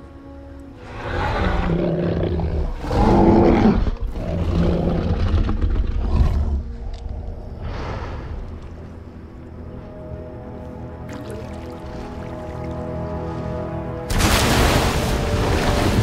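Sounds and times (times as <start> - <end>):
giant ape growling and roaring: 0.8 - 8.4.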